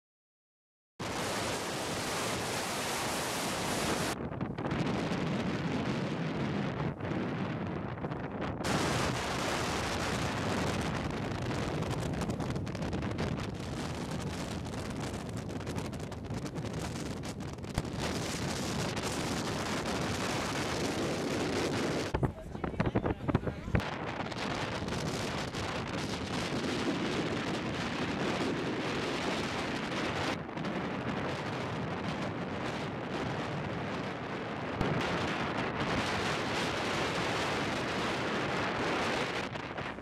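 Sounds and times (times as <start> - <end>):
wind buffeting microphone: 1.0 - 40.0.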